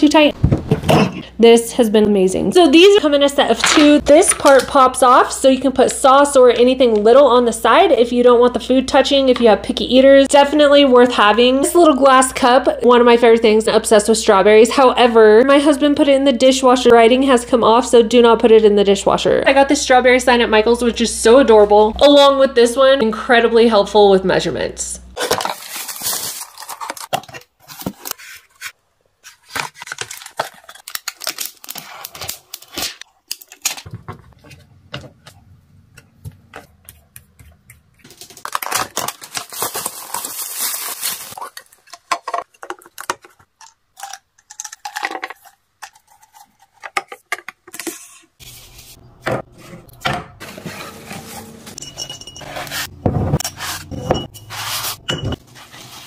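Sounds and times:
plastic wrap crinkling: 25.2s - 28.6s, 29.3s - 34.4s, 38.0s - 46.4s
glass jars clinking: 50.8s - 53.2s, 53.8s - 55.4s.

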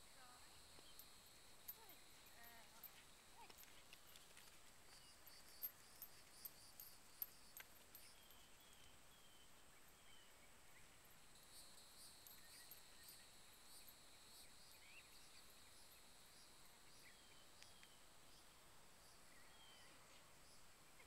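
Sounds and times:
high insect drone: 9.8s - 21.0s.

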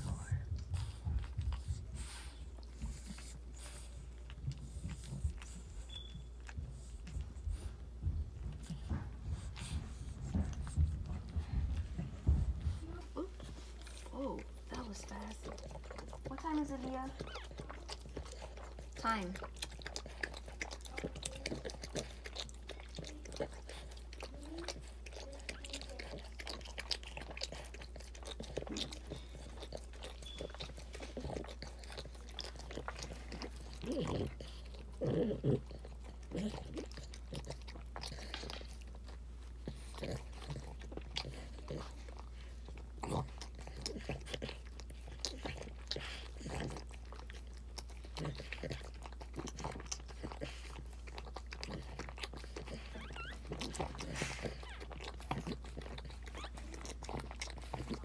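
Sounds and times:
dog licking puppies: 0.0s - 58.0s.

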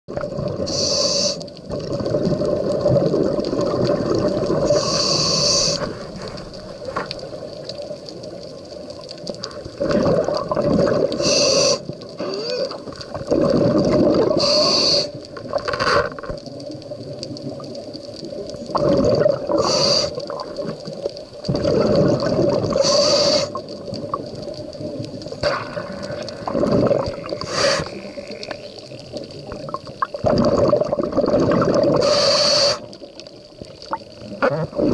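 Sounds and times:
exhaled bubbles rumbling: 0.1s - 0.8s, 1.4s - 34.9s
regulator inhale hiss: 0.6s - 1.6s, 4.6s - 6.2s, 11.1s - 12.8s, 14.4s - 15.2s, 19.6s - 20.4s, 22.7s - 23.7s, 27.3s - 28.7s, 32.0s - 33.0s.

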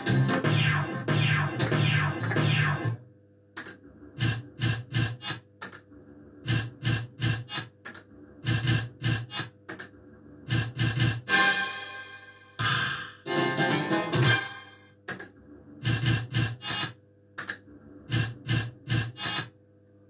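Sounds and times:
faint steady hum: 2.2s - 11.3s
sharp clicks: 3.6s - 5.9s, 17.4s - 17.6s.

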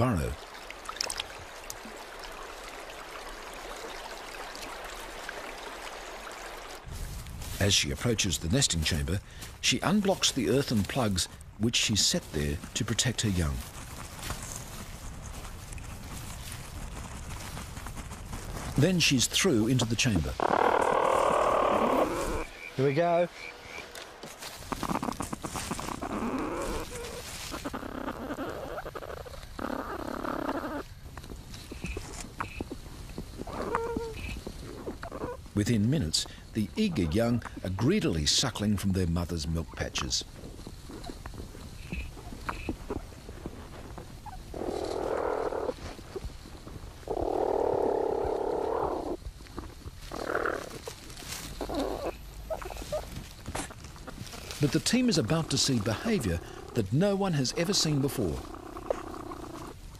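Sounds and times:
platypuses rasping: 18.8s - 30.9s, 47.0s - 59.8s
rustling and scraping in nest: 23.5s - 28.3s, 49.4s - 56.3s.

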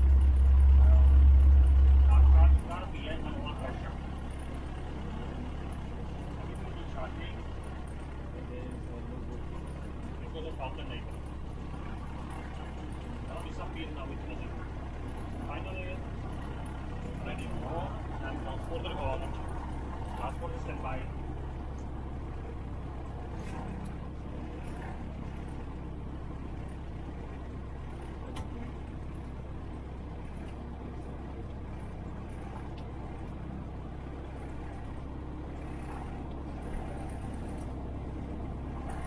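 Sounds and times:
aircraft engine idling: 0.0s - 39.0s
faint clicks: 32.7s - 33.4s.

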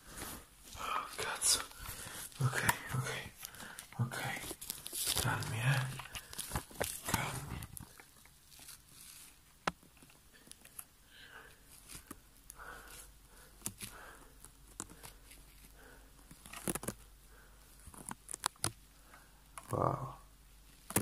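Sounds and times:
camera handling rustle: 1.6s - 10.9s, 16.2s - 17.0s.

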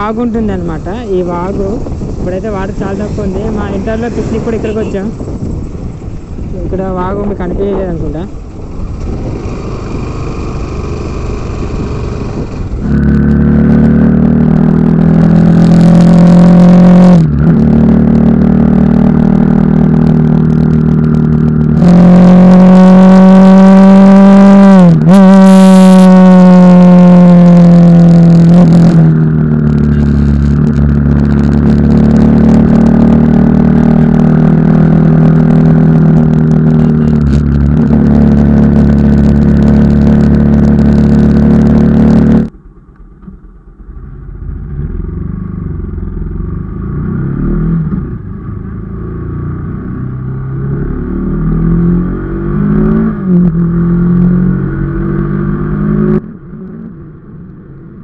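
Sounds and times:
motorcycle engine revving: 0.0s - 42.5s, 44.0s - 57.2s.

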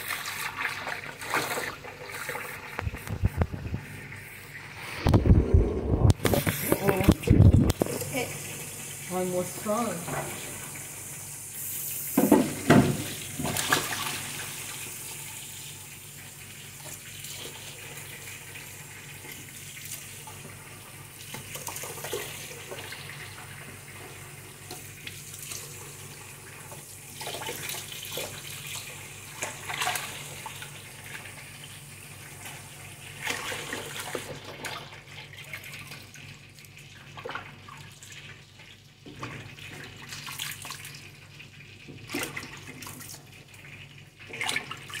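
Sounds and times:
tap running into sink: 6.0s - 8.2s, 12.1s - 14.0s.

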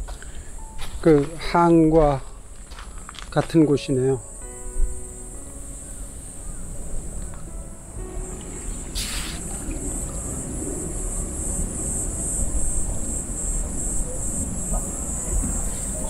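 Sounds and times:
insects chirping: 0.0s - 16.0s
wind rumbling on microphone: 5.8s - 16.0s.

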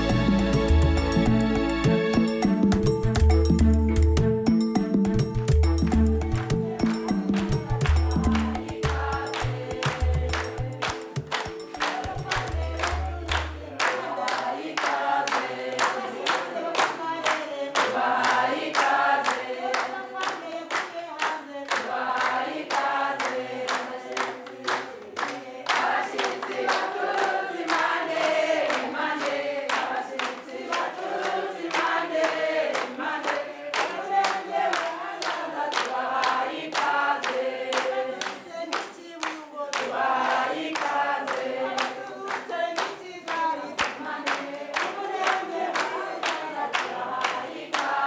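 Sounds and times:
quick percussive beat: 0.0s - 13.8s
choir singing: 6.0s - 48.0s.

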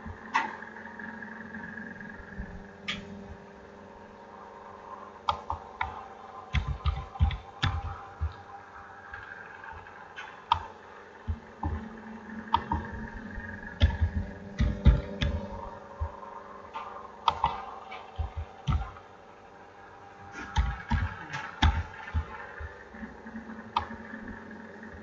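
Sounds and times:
steady low hum: 0.0s - 25.0s
computer mouse clicking: 5.3s - 8.4s, 12.5s - 13.0s, 17.2s - 19.0s.

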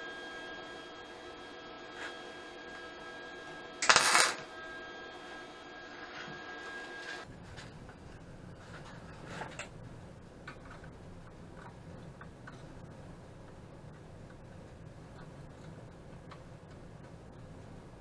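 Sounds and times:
steady electrical hum: 0.0s - 18.0s
welding crackle: 3.8s - 4.4s.

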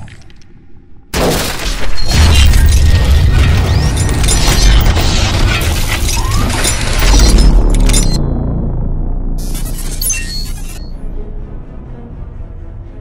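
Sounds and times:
glass shattering crash: 1.2s - 8.2s, 9.4s - 10.9s
cinematic music: 2.1s - 13.0s.

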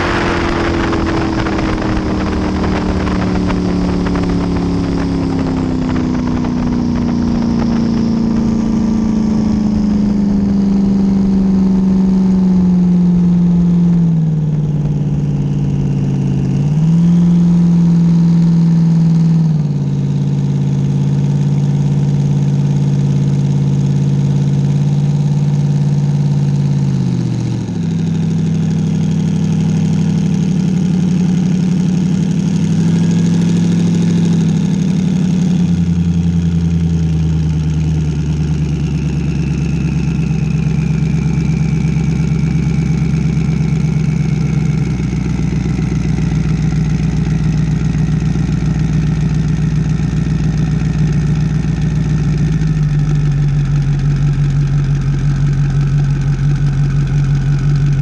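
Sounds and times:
faint whine falling in pitch: 0.0s - 22.3s
boat engine rumbling: 0.0s - 58.0s.

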